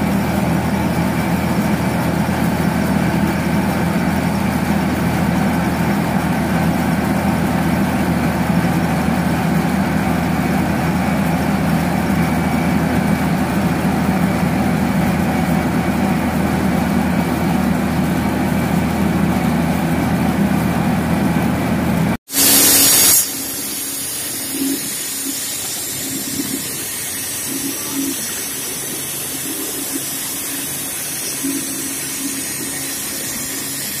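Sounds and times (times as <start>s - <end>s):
heavy diesel engine running: 0.0s - 22.6s, 23.3s - 34.0s
spraying hiss: 22.3s - 34.0s.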